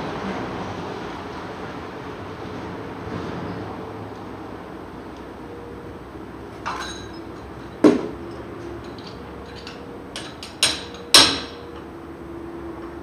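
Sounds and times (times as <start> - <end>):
lingering metallic ring: 6.6 - 11.8
hammer striking steel: 9.0 - 11.8.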